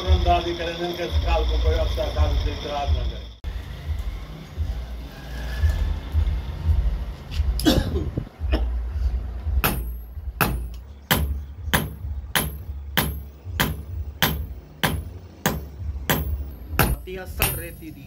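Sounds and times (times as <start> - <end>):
hammer beating metal on anvil: 9.6 - 18.0.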